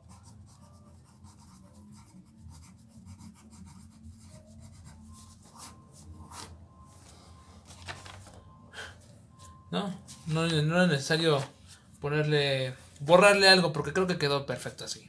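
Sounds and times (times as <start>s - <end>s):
pencil scratching on paper: 0.0s - 6.5s.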